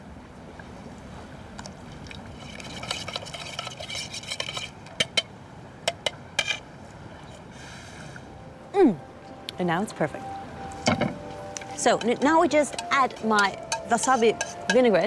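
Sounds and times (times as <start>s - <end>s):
spoon stirring liquid in bowl: 2.4s - 5.3s, 11.5s - 15.0s
spoon clinking against bowl: 11.6s - 15.0s.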